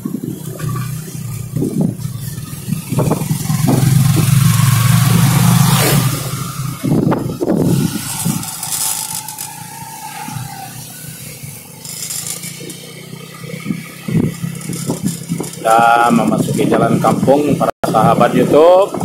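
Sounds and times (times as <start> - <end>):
vehicle engine rolling slowly: 0.0 - 19.0
scraping and rattling knocks: 0.6 - 10.5, 13.6 - 16.7.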